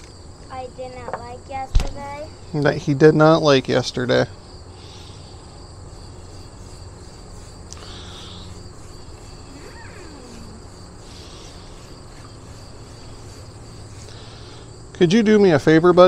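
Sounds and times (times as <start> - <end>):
insects shrilling: 0.0 - 16.0
pulsing buzz: 4.3 - 15.1.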